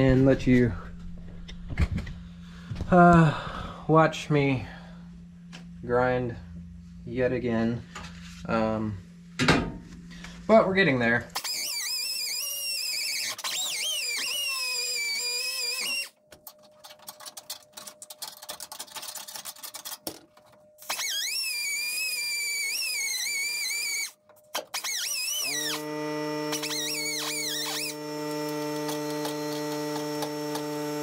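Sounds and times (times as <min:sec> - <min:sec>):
low steady hum: 0:00.0 - 0:11.4
angle grinder grinding metal: 0:11.3 - 0:16.2, 0:20.8 - 0:31.0.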